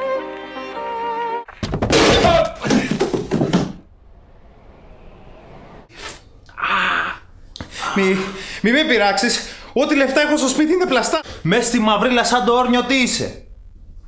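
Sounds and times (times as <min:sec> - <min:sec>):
slow violin music: 0:00.0 - 0:01.5
loud banging and crashing: 0:01.6 - 0:04.6
low hiss: 0:03.8 - 0:14.0.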